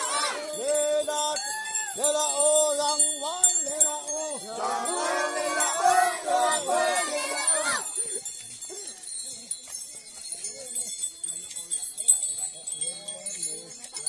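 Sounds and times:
men chanting: 0.0s - 7.9s
metallic jingling: 0.0s - 14.0s.

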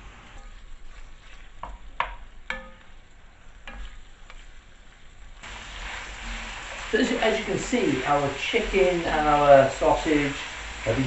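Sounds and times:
meat sizzling in oil: 0.0s - 11.0s
wooden spatula knocking pan: 1.6s - 3.0s.

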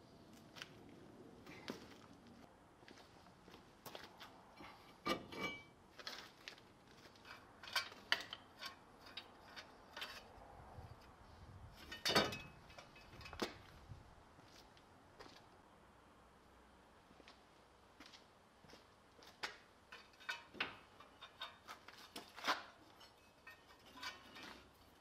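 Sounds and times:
metallic clinks and scrapes: 7.2s - 10.4s, 19.9s - 25.0s.

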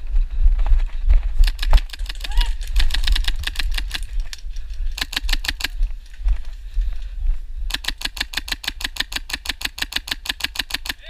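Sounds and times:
airsoft rifle full-auto bursts: 1.4s - 4.1s, 5.0s - 5.8s, 7.7s - 11.0s.

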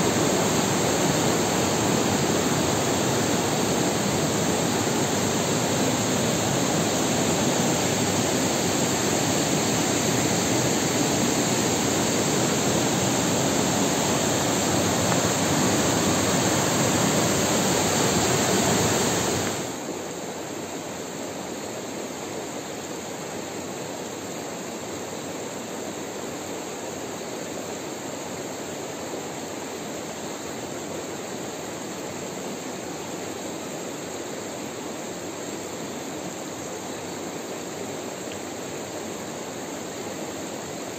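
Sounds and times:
fast-flowing water rushing: 0.0s - 19.9s
stream running over rocks: 0.0s - 20.0s.

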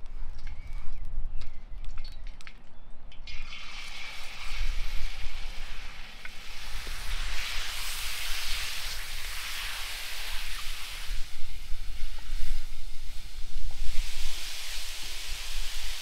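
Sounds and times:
chicken sizzling in a wok: 3.5s - 16.0s.

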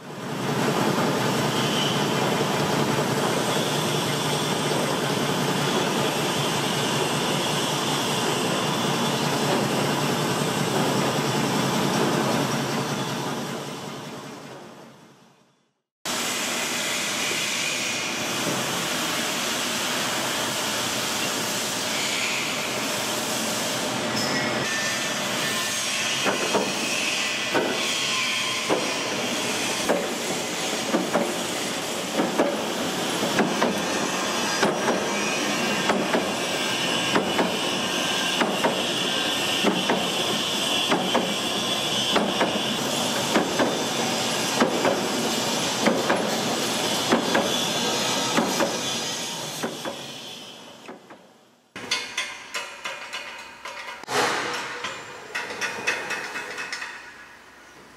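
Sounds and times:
sharp machine knock: 29.8s - 30.2s, 32.1s - 33.9s, 34.5s - 35.1s, 35.8s - 36.4s, 37.0s - 37.6s, 38.2s - 39.0s, 39.6s - 43.8s, 44.6s - 45.1s, 45.8s - 46.3s, 47.1s - 47.6s, 51.8s - 57.0s.

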